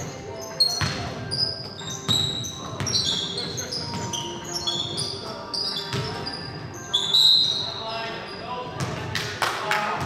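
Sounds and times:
sneakers squeaking: 0.0 - 9.1
basketball bouncing: 5.9 - 6.2.

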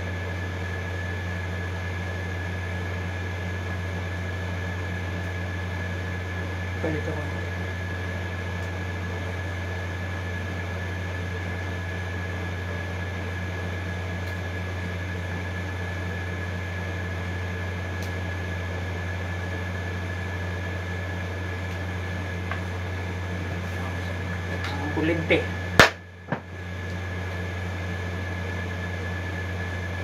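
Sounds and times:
air conditioner humming: 0.0 - 30.0.

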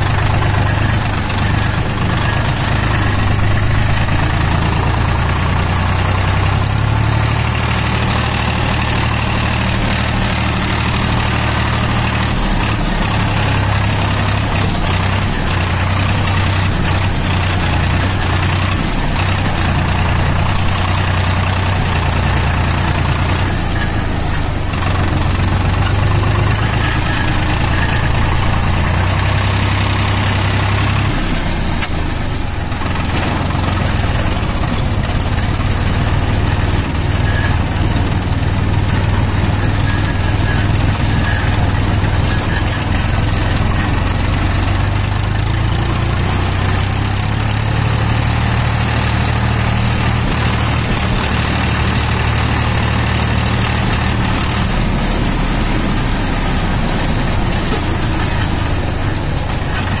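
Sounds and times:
tractor engine running: 0.0 - 60.0.

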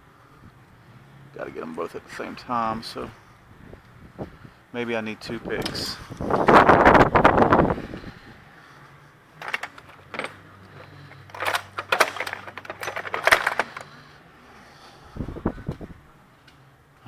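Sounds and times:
metal tools clinking in drawer: 9.4 - 13.9.

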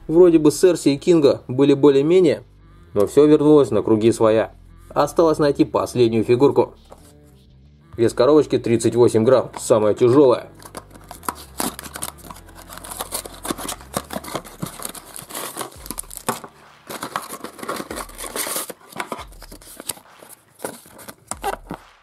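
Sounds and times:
cardboard box tearing: 10.6 - 21.8
rustling and crinkling: 10.6 - 22.0.

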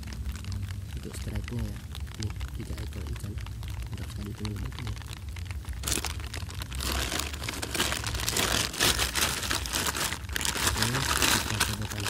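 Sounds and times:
plastic bag crinkling: 0.0 - 12.0
steady low rumble: 0.0 - 12.0
dry straw rustling: 5.8 - 12.0.

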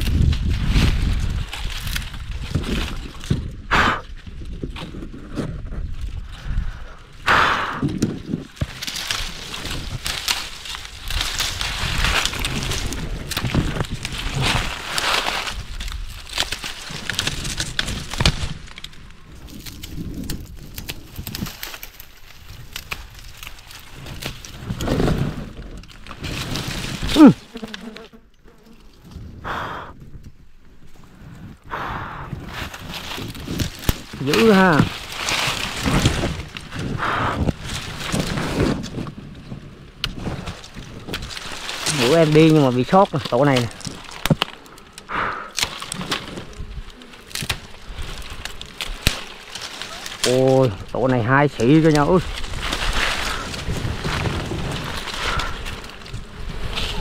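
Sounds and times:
twigs snapping: 0.0 - 29.2, 32.5 - 57.0
brush rustling: 0.0 - 29.4, 30.0 - 57.0
bees buzzing: 27.0 - 28.8.

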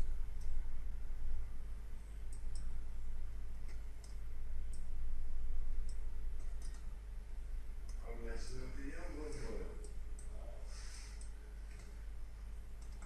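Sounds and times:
low electrical hum: 0.0 - 13.0
computer mouse clicking: 2.2 - 2.8, 3.6 - 4.9, 5.8 - 7.0, 9.8 - 10.4, 11.1 - 12.0, 12.8 - 13.0.

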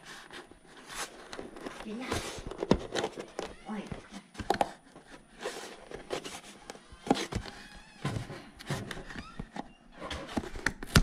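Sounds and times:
plastic parts clicking and knocking: 1.3 - 5.2.

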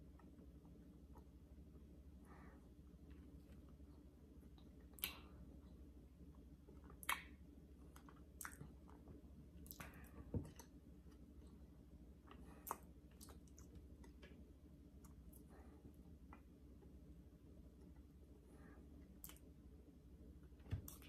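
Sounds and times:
low steady hum: 0.0 - 21.0
mouth and finger clicks: 4.9 - 5.3.

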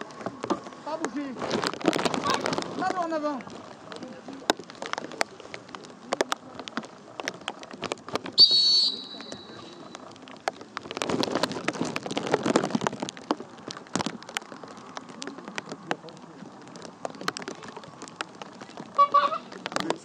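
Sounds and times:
rustling noise: 0.0 - 20.0
sharp clicks and patter: 0.0 - 20.0
shrill whistle blast: 8.4 - 9.6.

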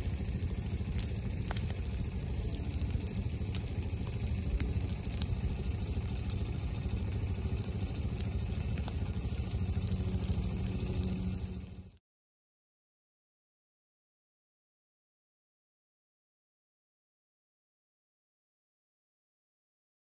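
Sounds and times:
fire burning through dry leaves: 0.0 - 12.0.

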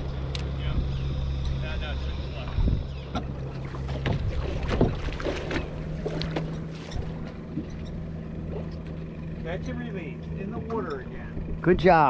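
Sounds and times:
boat motor humming: 0.0 - 12.0
water splashing on hull: 2.2 - 9.6
wind on microphone: 2.4 - 3.1.

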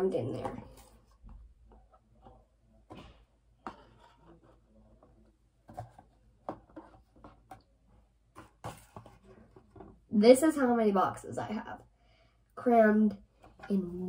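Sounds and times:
cardboard handling: 0.7 - 7.7, 8.3 - 10.0.

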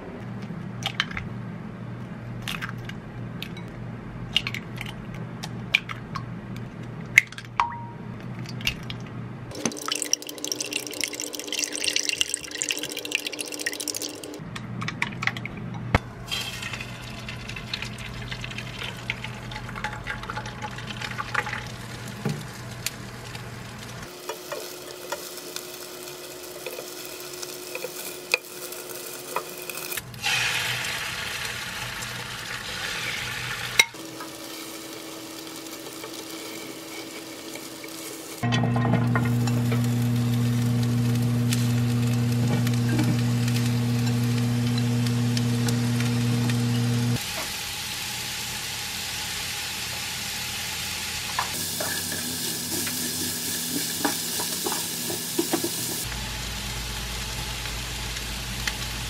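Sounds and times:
egg sizzling in frying pan: 16.3 - 38.5, 39.1 - 59.0.

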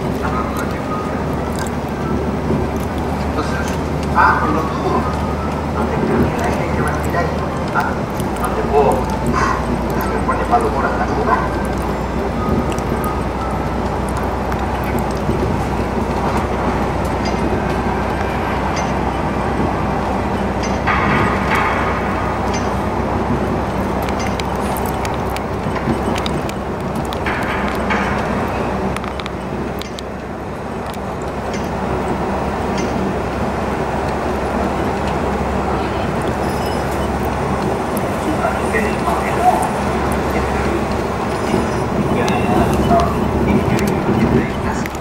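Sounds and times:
faint clicks: 0.0 - 33.3
car road and engine noise: 0.0 - 45.0.

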